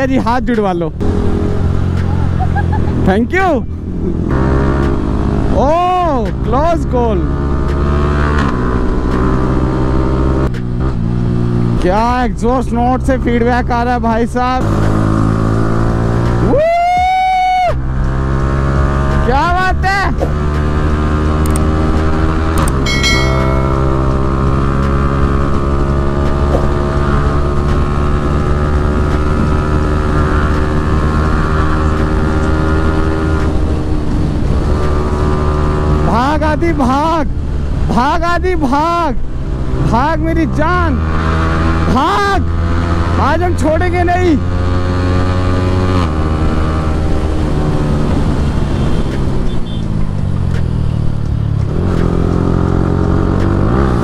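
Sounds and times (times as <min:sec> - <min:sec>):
motorcycle engine cruising: 0:00.0 - 0:54.0
wind noise on microphone: 0:45.5 - 0:50.3.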